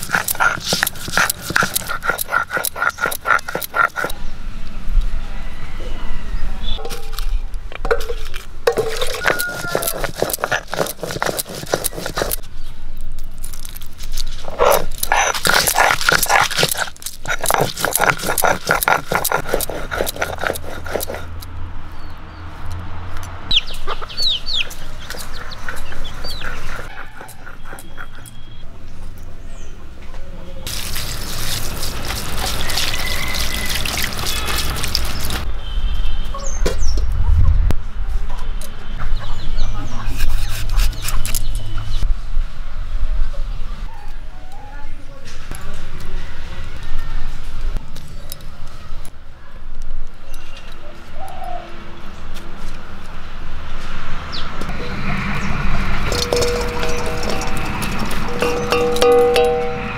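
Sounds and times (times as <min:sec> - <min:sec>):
rhythmic stone grating: 0:00.0 - 0:04.2, 0:08.3 - 0:12.5, 0:13.3 - 0:21.5, 0:23.8 - 0:28.6, 0:54.7 - 0:59.9
water splashing through basket: 0:30.7 - 0:35.4.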